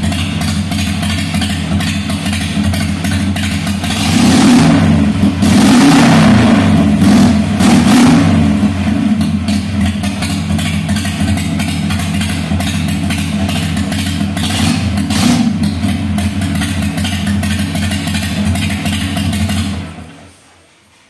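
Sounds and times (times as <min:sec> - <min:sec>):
motorcycle engine idling: 0:00.0 - 0:05.5, 0:06.5 - 0:20.2.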